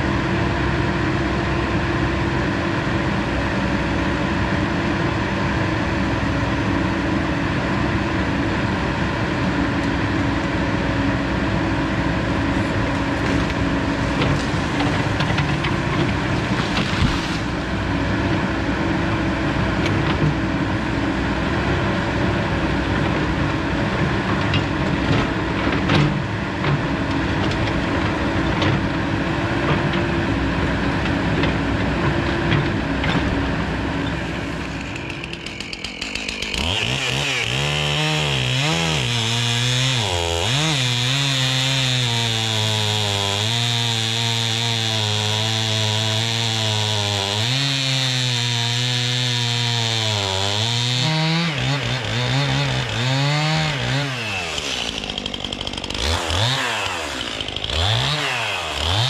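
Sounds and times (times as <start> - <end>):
excavator diesel engine running: 0.0 - 37.0.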